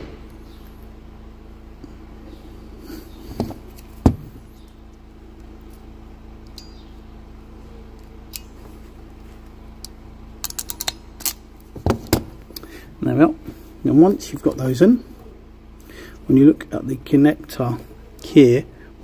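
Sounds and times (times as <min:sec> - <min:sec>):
sharp metal clicks: 0:09.8 - 0:11.4.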